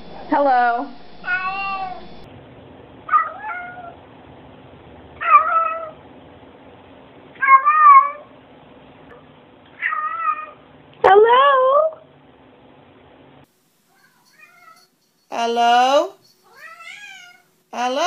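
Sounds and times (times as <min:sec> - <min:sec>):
cat meowing: 0:01.2 - 0:02.0, 0:03.1 - 0:04.0, 0:05.2 - 0:06.0, 0:07.4 - 0:08.3, 0:09.8 - 0:10.6, 0:16.5 - 0:17.5.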